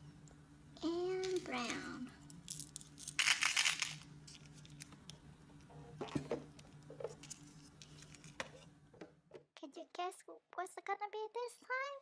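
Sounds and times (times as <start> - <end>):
candies rattling into plastic cup: 2.5 - 4.0.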